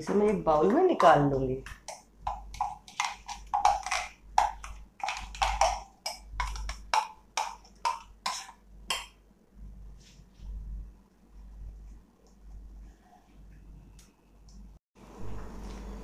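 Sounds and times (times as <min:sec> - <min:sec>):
metal spoon knocking in steel jar: 0:01.0 - 0:09.1.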